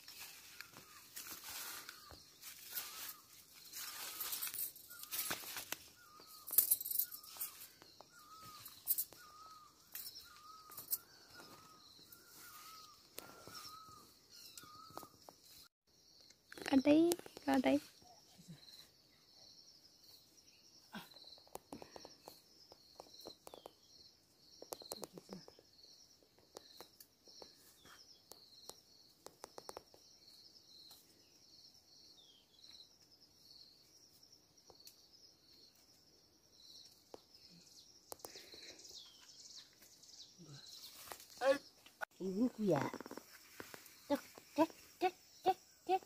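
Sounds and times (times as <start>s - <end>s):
insects chirring: 0.0s - 46.0s.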